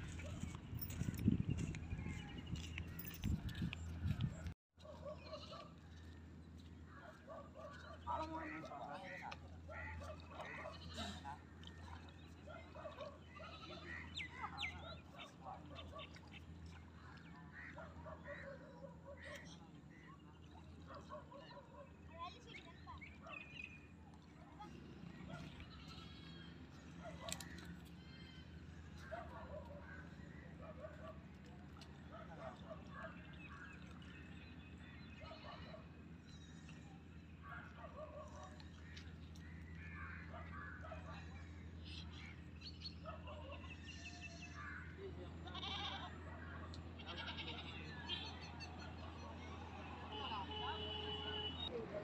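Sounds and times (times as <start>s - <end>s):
birds calling and chirping: 0.0s - 52.0s
faint animal calls: 43.0s - 50.8s.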